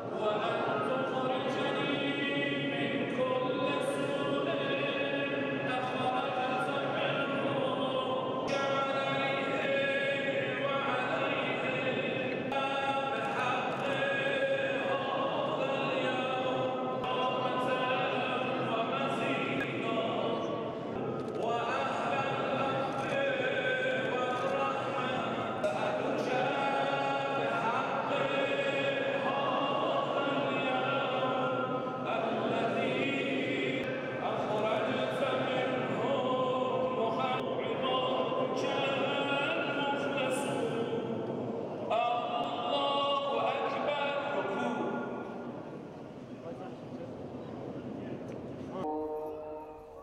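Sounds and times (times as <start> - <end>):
worshippers chanting: 0.0 - 45.6.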